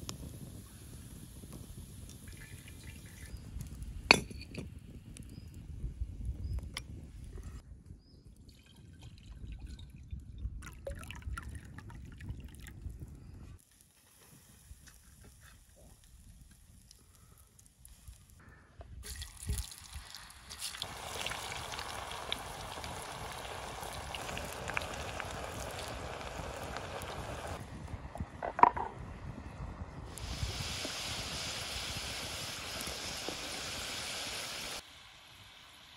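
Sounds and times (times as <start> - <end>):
clinks: 4.1 - 4.7
oil sizzling in a pan: 19.1 - 27.6, 30.1 - 35.9.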